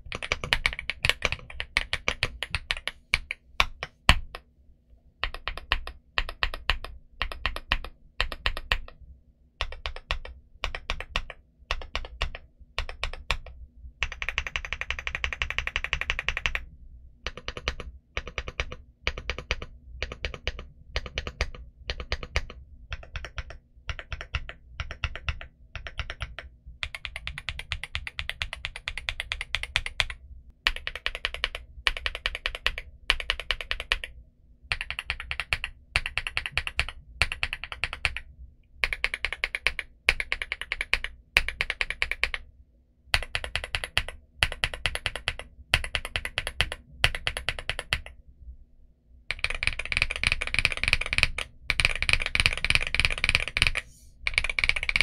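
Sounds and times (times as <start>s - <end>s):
mechanical keyboard typing: 0.0s - 4.4s, 5.2s - 9.0s, 9.6s - 42.4s, 43.1s - 48.1s, 49.3s - 55.0s.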